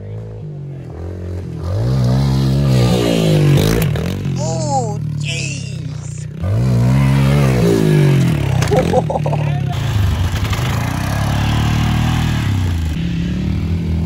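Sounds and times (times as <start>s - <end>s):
pit bike engine revving: 0.9s - 5.2s, 5.8s - 14.0s
person shouting: 4.4s - 6.3s.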